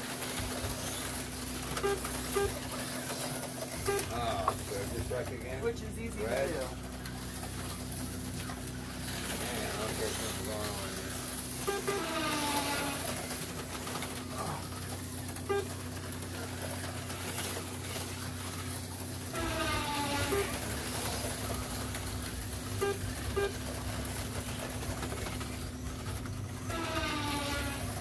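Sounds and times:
slot car motors whining: 0.0 - 28.0
steady electrical hum: 0.0 - 28.0
short blips: 1.6 - 2.6, 3.7 - 4.3, 15.4 - 15.8, 22.7 - 23.6.

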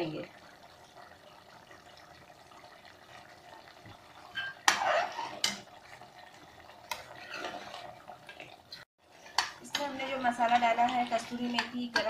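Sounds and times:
metal spoon clanking on pot: 9.2 - 12.0.

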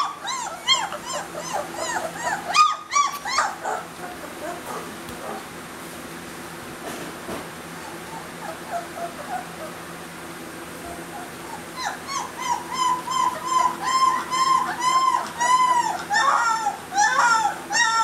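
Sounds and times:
puppy whimpering and crying: 0.0 - 4.7, 7.8 - 9.8, 10.9 - 18.0.

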